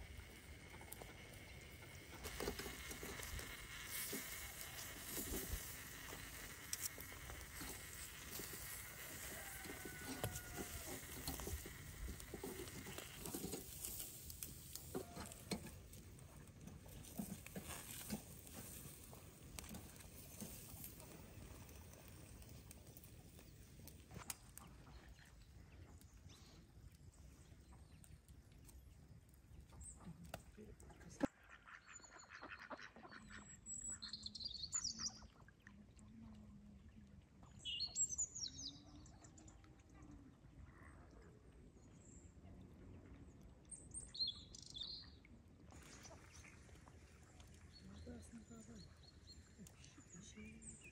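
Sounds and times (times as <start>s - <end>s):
fish crackling on grill: 0.0s - 24.7s.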